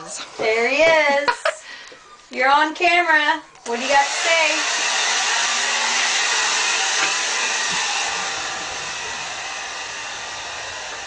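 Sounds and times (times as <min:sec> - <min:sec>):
hair dryer blowing: 0:03.6 - 0:11.0.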